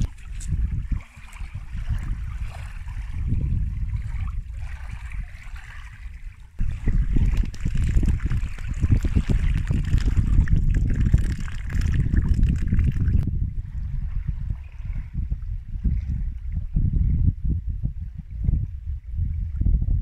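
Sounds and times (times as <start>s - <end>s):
small waves splashing on shore: 0.0s - 10.4s
wind buffeting microphone: 0.0s - 20.0s.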